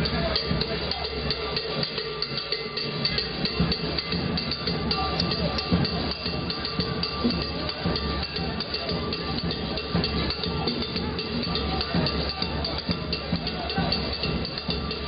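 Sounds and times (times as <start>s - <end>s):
drum kit and congas: 0.0s - 15.0s.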